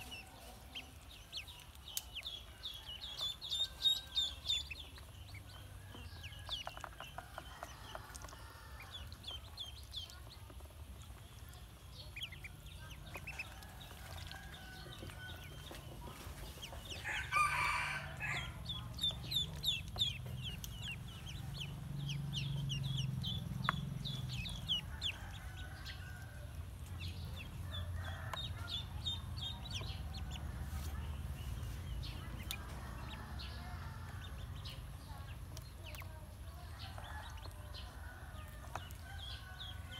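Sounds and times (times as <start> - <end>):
ducklings peeping: 0.0 - 39.9.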